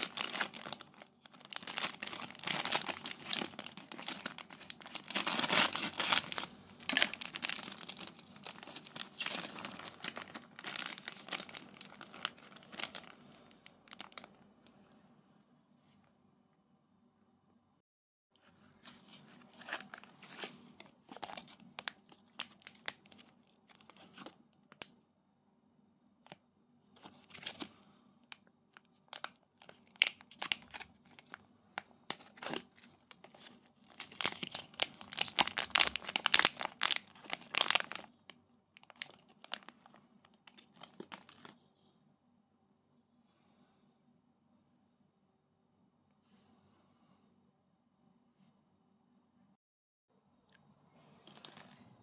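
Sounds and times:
plastic packaging crinkling and tearing: 0.0s - 14.4s, 18.5s - 24.9s, 27.0s - 27.7s, 28.8s - 38.2s, 38.8s - 41.5s, 51.3s - 51.8s.

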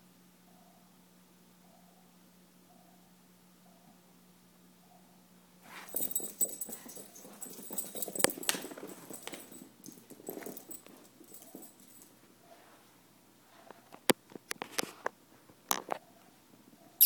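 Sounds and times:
dogs scuffling in play: 5.6s - 12.8s.

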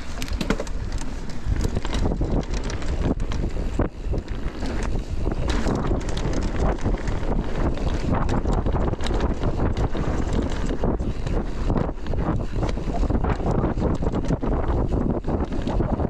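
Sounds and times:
bike clattering over rough trail: 0.0s - 16.0s
wind rushing over microphone: 0.0s - 16.0s.

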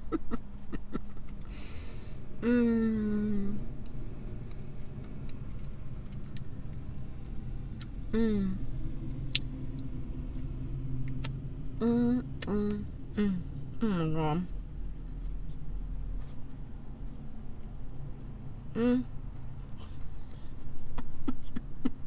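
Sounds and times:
steady low rumble: 0.0s - 22.0s
woman humming with enjoyment: 2.4s - 3.6s, 8.1s - 8.7s, 11.8s - 14.5s, 18.7s - 19.1s.

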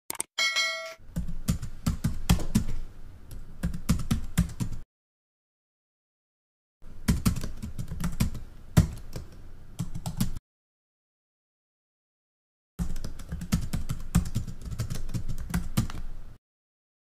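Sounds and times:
keyboard typing: 0.1s - 0.3s, 7.0s - 10.4s, 12.8s - 16.0s.

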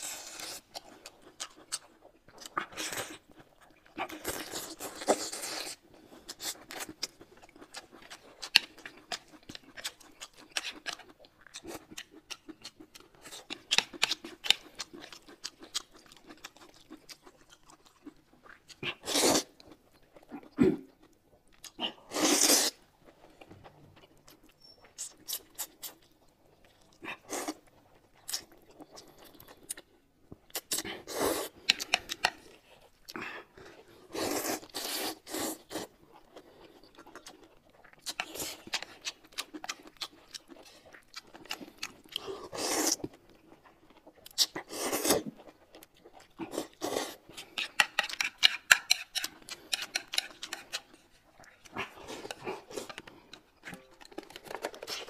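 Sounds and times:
chewing and crunching: 0.0s - 55.0s
noodles slurped: 37.8s - 45.4s.

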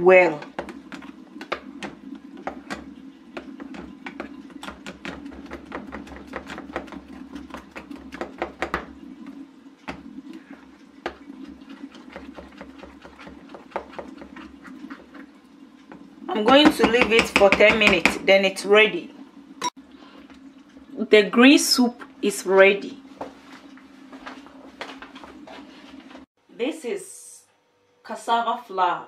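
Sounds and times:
spatula stirring pot: 0.0s - 18.3s
sauce boiling with pops: 0.3s - 18.3s.

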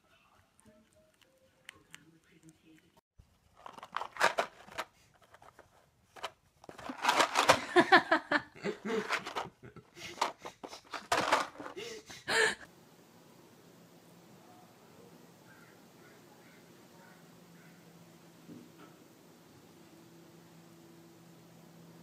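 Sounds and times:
person laughing: 7.5s - 10.9s, 11.6s - 12.6s.

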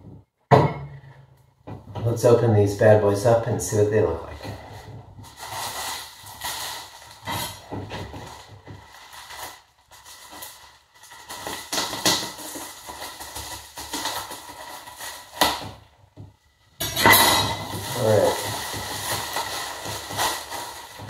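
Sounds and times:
plastic bag rustling and crinkling: 4.1s - 16.5s, 17.2s - 21.0s.

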